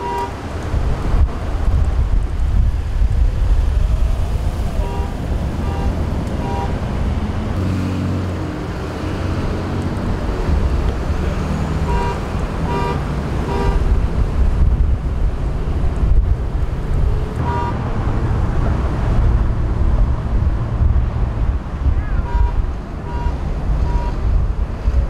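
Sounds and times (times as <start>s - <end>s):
road traffic: 0.0s - 25.0s
wind buffeting microphone: 0.0s - 25.0s
vehicle engine passing: 3.5s - 24.9s
short electronic beeps: 22.3s - 24.2s.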